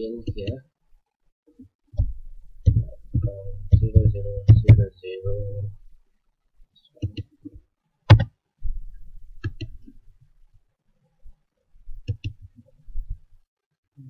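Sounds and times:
computer mouse clicks: 9.4s - 9.9s, 12.0s - 12.5s.

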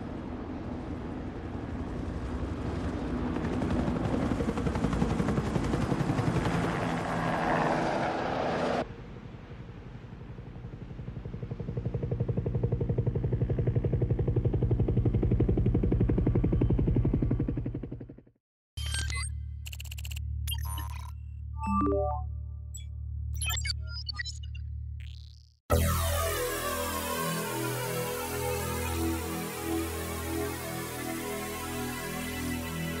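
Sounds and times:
helicopter rotor chopping: 1.5s - 8.8s, 10.2s - 18.3s.

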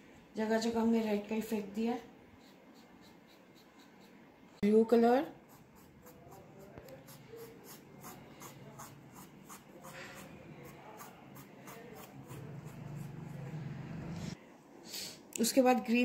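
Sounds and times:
wooden stick scraping paint on paper: 2.4s - 4.2s, 5.4s - 14.4s.

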